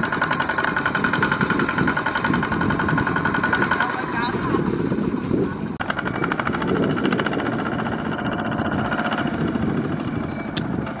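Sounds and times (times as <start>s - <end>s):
diesel engine chugging: 0.0s - 11.0s.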